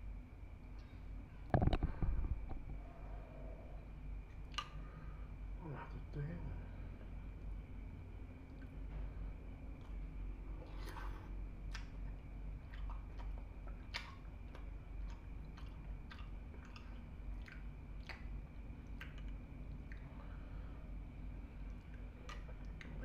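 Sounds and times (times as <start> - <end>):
man chewing: 9.7 - 20.2, 21.6 - 23.0.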